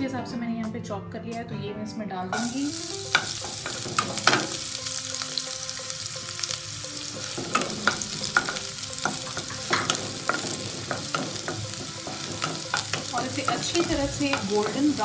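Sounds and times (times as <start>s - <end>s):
onion sizzling in hot oil: 2.3s - 15.0s
spatula scraping and knocking pan: 2.4s - 5.4s, 6.3s - 15.0s.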